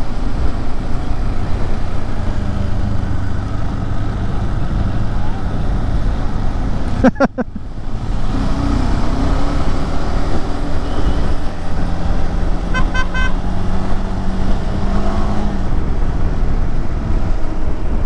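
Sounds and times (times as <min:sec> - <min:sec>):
motorcycle engine accelerating: 0:02.1 - 0:17.2
horn short beeps: 0:12.8 - 0:13.4.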